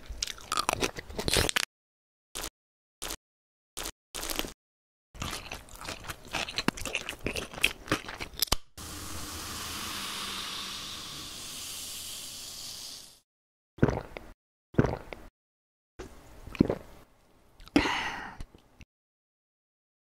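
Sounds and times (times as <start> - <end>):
soda fizzing hiss: 8.8 - 13.2.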